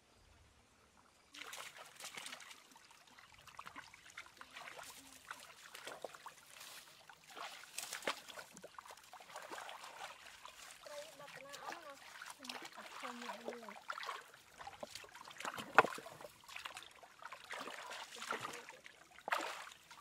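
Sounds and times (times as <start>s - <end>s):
stream water trickling: 0.1s - 20.0s
splashes of hands and feet: 1.3s - 20.0s.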